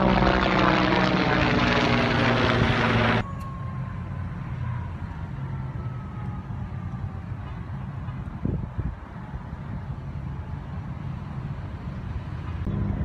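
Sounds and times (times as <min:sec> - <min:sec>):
propeller aircraft engine drone: 0:00.0 - 0:13.0
wind noise on microphone: 0:08.1 - 0:09.8.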